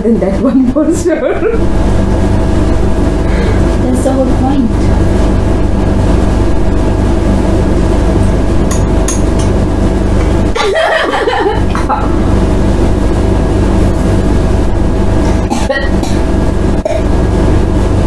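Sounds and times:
low mechanical hum: 0.0s - 18.0s
woman chuckling: 0.5s - 1.6s, 10.6s - 12.2s.

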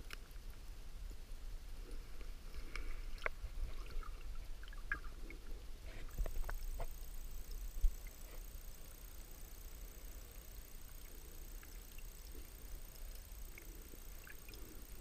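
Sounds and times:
faint high whine: 0.0s - 15.0s
muffled underwater rumble: 1.7s - 15.0s.

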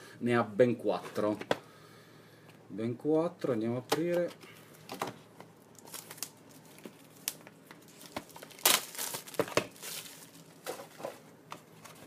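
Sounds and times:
crinkling tearing rustle: 5.7s - 11.2s.

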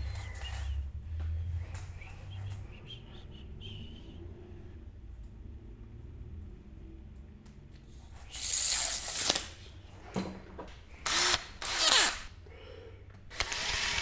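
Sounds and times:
cordless drill drilling into wall: 11.0s - 12.3s, 13.3s - 14.0s.

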